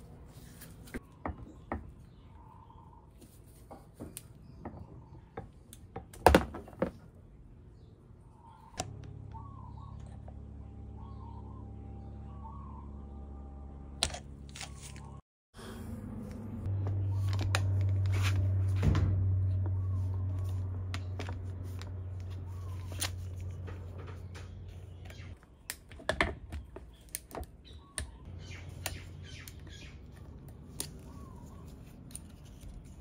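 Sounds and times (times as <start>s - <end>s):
birds chirping faintly: 0.0s - 14.0s, 19.4s - 33.0s
steady low hum: 8.2s - 25.4s.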